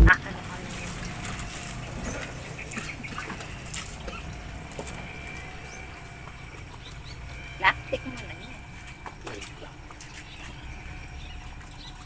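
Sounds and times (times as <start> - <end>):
low steady rumble: 0.0 - 12.0.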